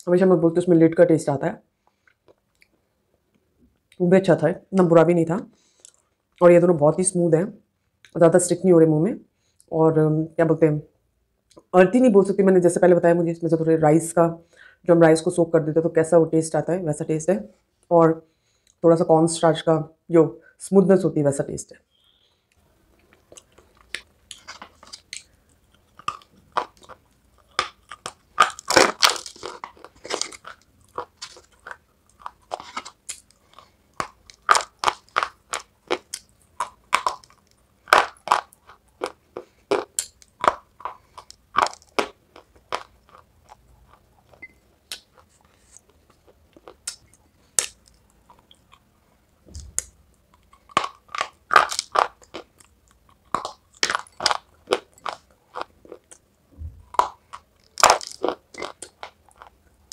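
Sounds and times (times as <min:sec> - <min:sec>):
crunching and chewing clay: 0:23.0 - 0:48.9, 0:49.5 - 0:59.9.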